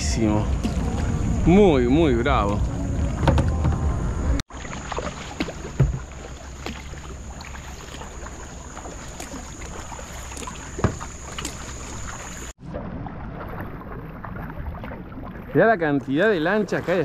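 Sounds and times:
wind on microphone: 0.0s - 4.4s
water splashing around a kayak: 0.0s - 17.0s
sharp splash or knock: 0.5s - 1.4s, 4.5s - 13.6s.

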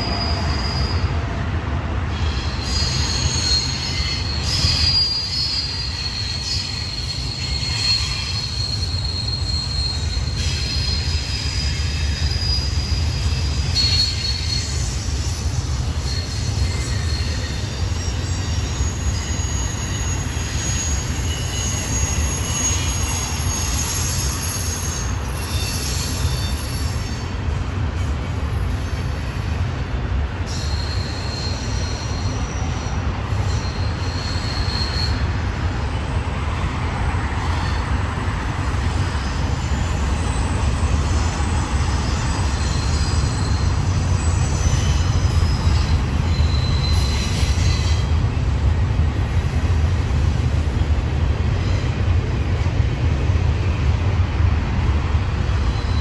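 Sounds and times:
high-pitched wheel squeal: 0.0s - 1.3s, 2.1s - 27.4s, 30.5s - 35.6s, 37.0s - 48.4s, 55.5s - 56.0s
freight train rumble: 0.0s - 56.0s.

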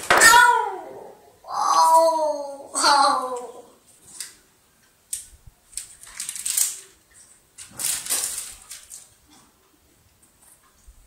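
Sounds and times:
plastic wrapper crinkling: 5.2s - 9.2s.

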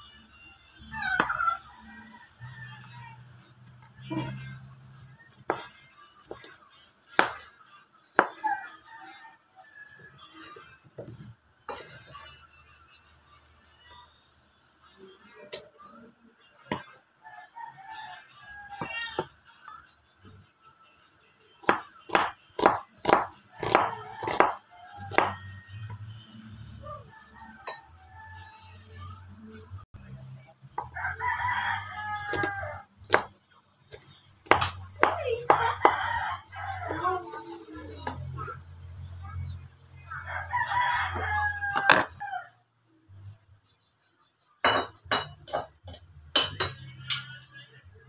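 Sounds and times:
knife chopping on wooden board: 7.2s - 7.4s, 21.6s - 25.4s, 34.4s - 35.7s
rooster crowing: 30.8s - 32.9s, 35.6s - 37.1s, 40.1s - 42.6s.

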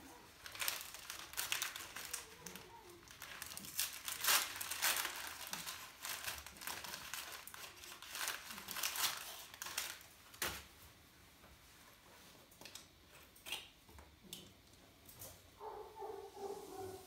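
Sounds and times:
wrapper crinkling and tearing: 0.1s - 10.7s.

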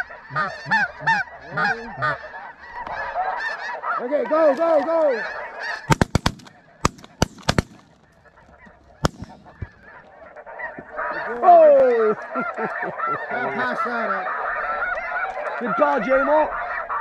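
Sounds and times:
geese calling: 0.0s - 17.0s
shotgun shots: 5.9s - 8.4s, 9.0s - 10.0s.

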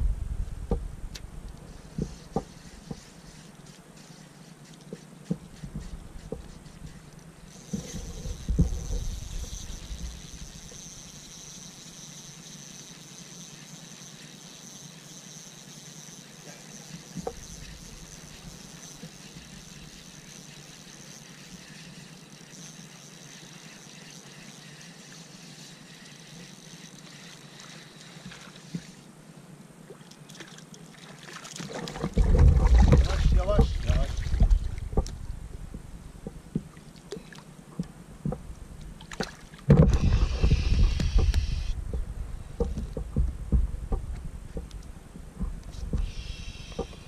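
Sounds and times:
faint high whine: 0.0s - 29.9s, 39.8s - 42.9s, 44.8s - 47.0s
water lapping at kayak: 1.8s - 29.2s, 29.8s - 47.0s.

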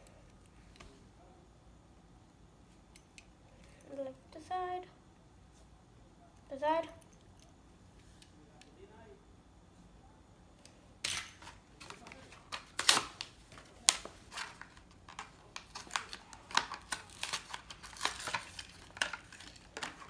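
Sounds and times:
plastic packaging torn open: 11.0s - 20.0s.

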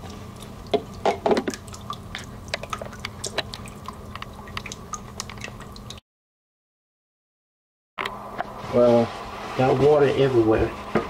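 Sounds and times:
droplets ticking and splatting: 0.0s - 6.0s.

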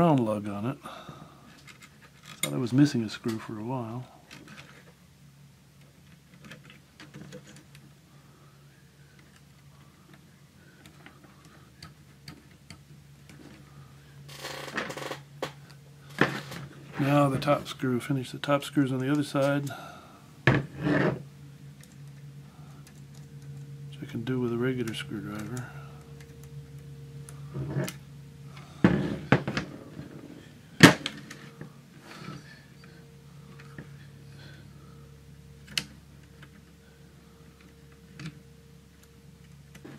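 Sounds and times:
steady low hum: 0.0s - 39.9s
scraping handling noise: 20.5s - 34.6s.

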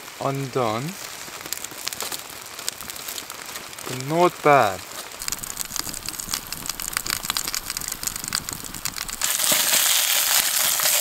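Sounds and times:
campfire crackling: 0.0s - 11.0s
food sizzling in a pot: 0.0s - 11.0s.

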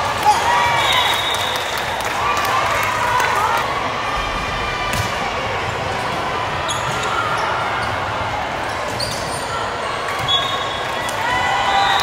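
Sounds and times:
crowd noise in hall: 0.0s - 12.0s.

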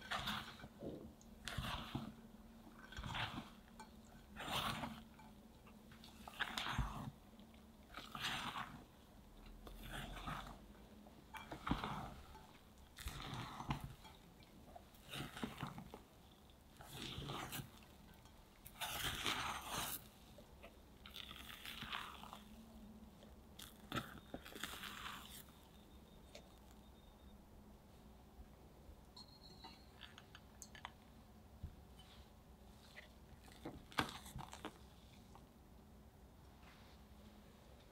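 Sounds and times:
spatula wet scraping swish: 2.8s - 5.0s, 8.0s - 8.9s, 18.7s - 20.2s.

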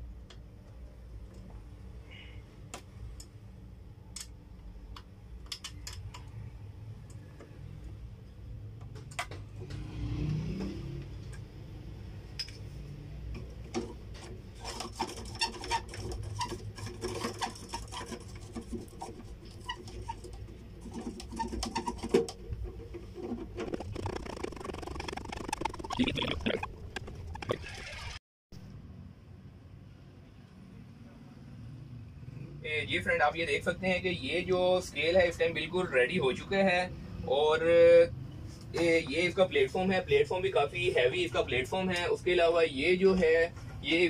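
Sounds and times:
clicks and taps of parts handled: 4.1s - 6.4s, 8.8s - 9.5s.

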